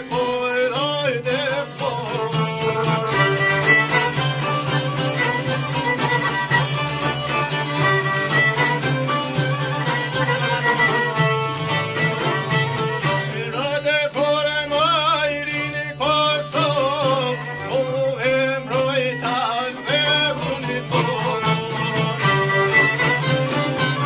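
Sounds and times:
accordion: 0.0 - 24.0
man singing ornamented melody: 0.0 - 24.0
strummed lutes: 0.0 - 24.0
violin: 0.0 - 24.0.

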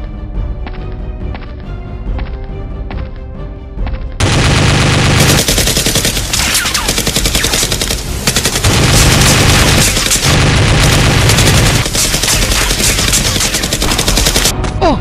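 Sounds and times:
automatic gunfire: 4.2 - 14.5.

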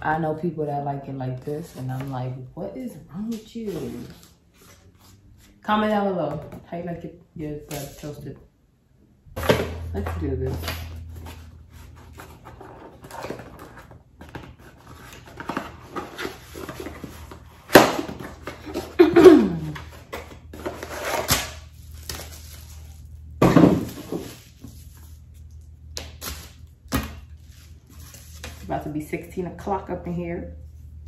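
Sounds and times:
cardboard and plastic rustling: 9.5 - 29.0.

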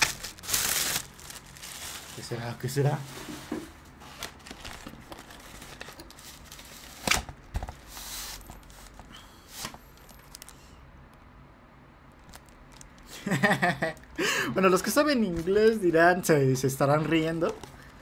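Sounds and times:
plastic packaging crinkling: 0.0 - 3.0, 4.1 - 7.8, 9.6 - 10.7, 12.1 - 13.1.

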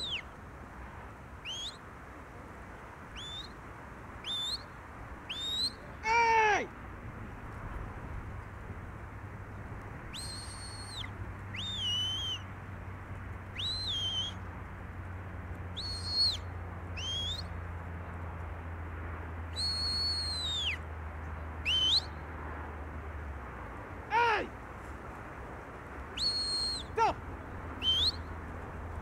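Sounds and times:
high whistle blasts: 1.4 - 1.8, 3.2 - 3.5, 4.2 - 4.7, 5.3 - 5.8, 10.1 - 12.4, 13.6 - 14.4, 15.8 - 16.4, 17.0 - 17.4, 19.5 - 20.8, 21.6 - 22.2, 26.2 - 27.0, 27.8 - 28.2.

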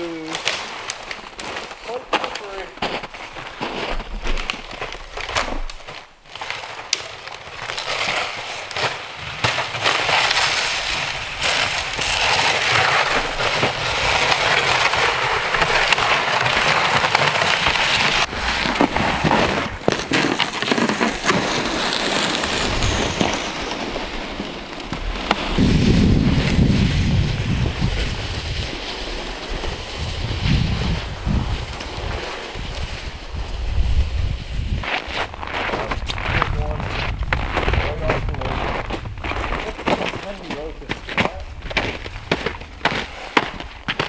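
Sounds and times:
footsteps crunching in snow: 0.0 - 44.0
sled scraping over snow: 0.0 - 44.0.

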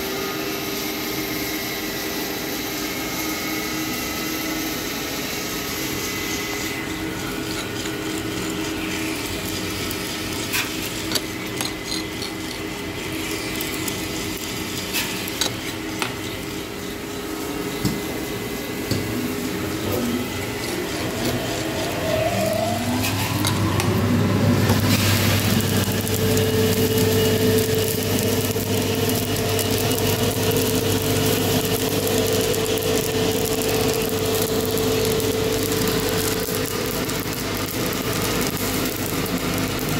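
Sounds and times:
coffee roaster machine hum: 0.0 - 39.9
coffee beans rushing and churning: 5.4 - 39.9
motor whine: 16.6 - 39.9.

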